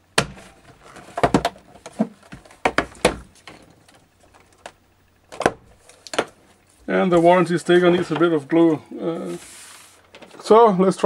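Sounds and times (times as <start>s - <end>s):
plastic computer case clicks and knocks: 0.2s - 6.4s.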